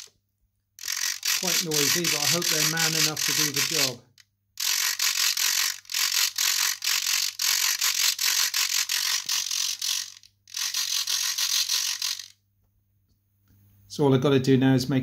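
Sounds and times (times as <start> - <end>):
servo gear chatter: 0.8 - 12.4.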